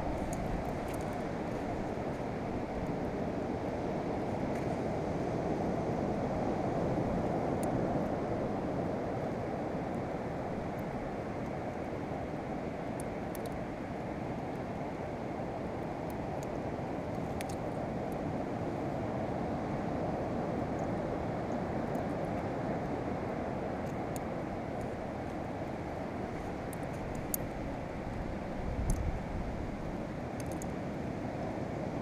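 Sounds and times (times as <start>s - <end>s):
wind: 0.0s - 32.0s
faint high ticks: 28.8s - 29.1s, 30.4s - 30.7s.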